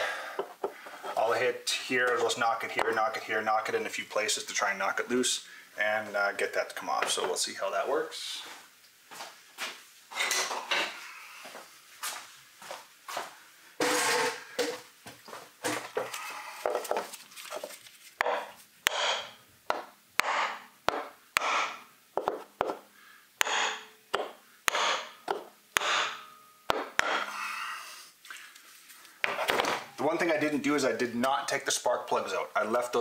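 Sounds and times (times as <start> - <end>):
hammer blows on wooden block: 18.2 - 22.8, 23.4 - 27.3.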